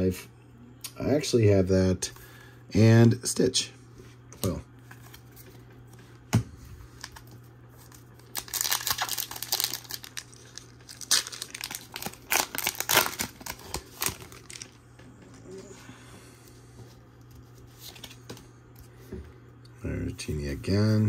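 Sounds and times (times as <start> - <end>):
foil wrapper crinkling and tearing: 6.9 - 14.8.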